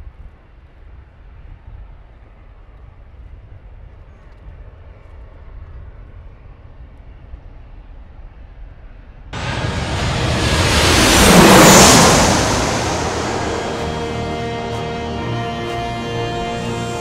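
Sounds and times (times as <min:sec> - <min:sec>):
jet airliner engines rumbling: 0:03.7 - 0:17.0.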